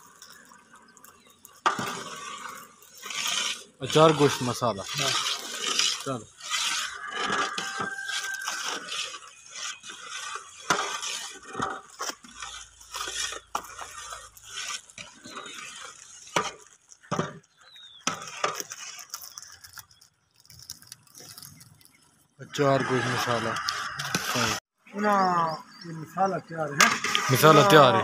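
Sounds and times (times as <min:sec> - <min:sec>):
metal ladle stirring liquid: 0:00.0 - 0:20.3.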